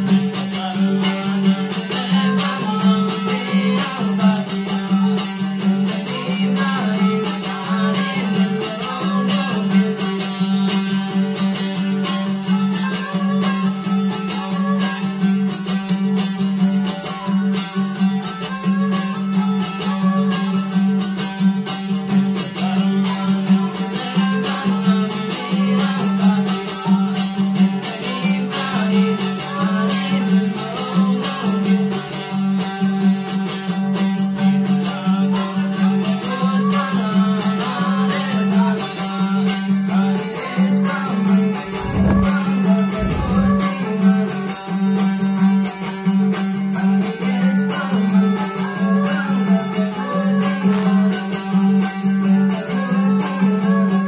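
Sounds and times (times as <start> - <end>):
lute strummed rapidly: 0.0 - 54.0
bowed fiddle melody: 17.0 - 45.0, 46.7 - 54.0.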